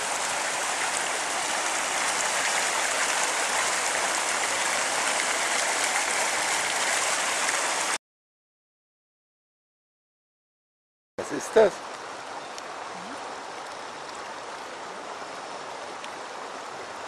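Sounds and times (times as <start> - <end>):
water pouring over a weir: 0.0 - 8.0.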